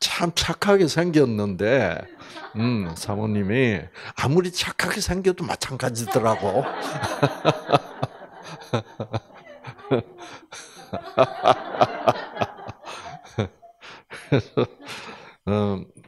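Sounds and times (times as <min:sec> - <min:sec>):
group laughing: 0:01.8 - 0:03.2, 0:06.0 - 0:15.3
man chuckling: 0:02.2 - 0:03.0, 0:06.2 - 0:15.8.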